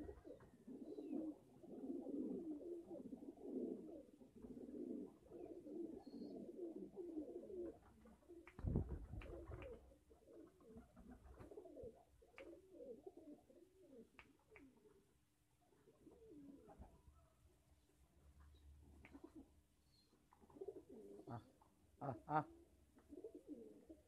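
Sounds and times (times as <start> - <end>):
pigeons cooing: 0.0 - 15.0, 15.9 - 17.0, 19.1 - 19.5, 20.4 - 24.0.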